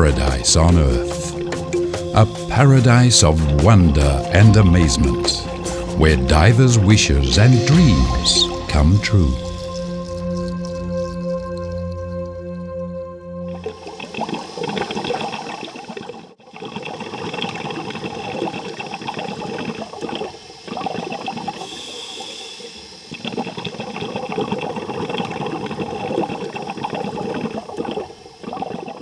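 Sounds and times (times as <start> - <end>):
bubbling rushing water: 0.0 - 12.6, 13.5 - 29.0.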